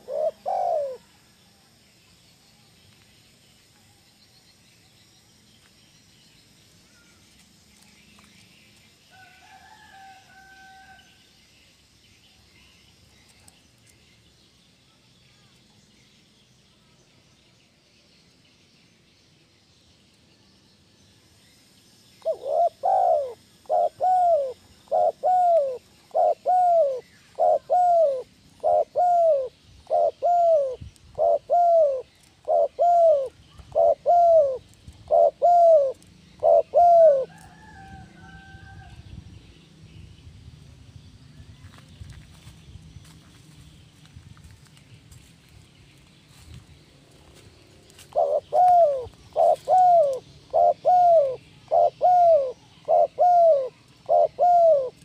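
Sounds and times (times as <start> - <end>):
dove cooing: 0.0 - 1.2, 22.2 - 37.8, 48.0 - 55.0
small birds chirping: 11.9 - 37.8, 39.5 - 55.0.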